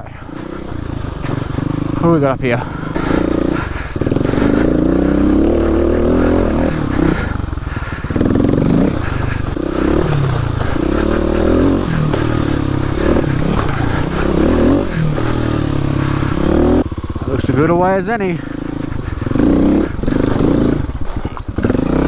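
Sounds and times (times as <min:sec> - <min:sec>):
motorcycle engine revving: 0:00.0 - 0:22.0.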